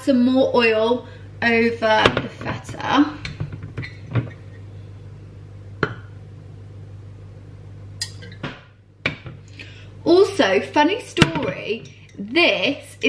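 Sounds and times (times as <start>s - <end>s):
steady low hum: 0.0s - 13.0s
glass bottle handled: 8.0s - 9.3s.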